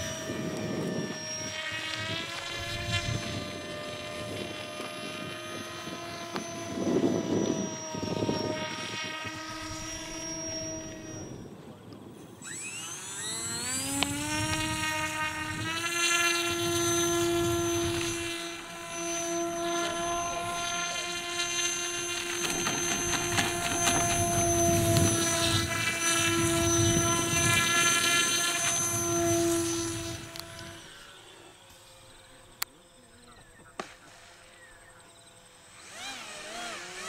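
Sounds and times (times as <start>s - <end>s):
model propeller motor whining: 0.0s - 37.0s.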